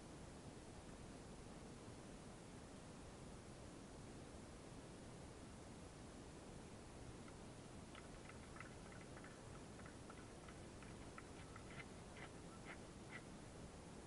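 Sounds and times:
faint steady hiss: 0.0 - 14.0
faint rapid ticking: 7.2 - 13.3.

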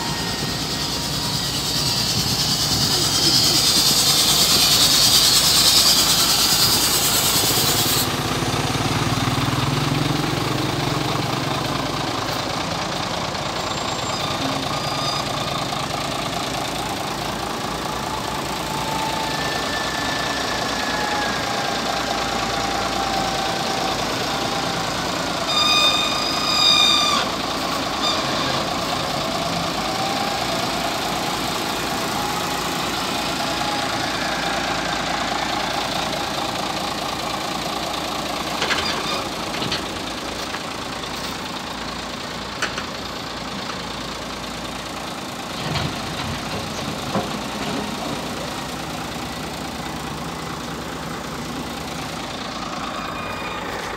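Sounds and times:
diesel engine running: 0.0 - 53.9
vehicle horn: 25.4 - 27.3.

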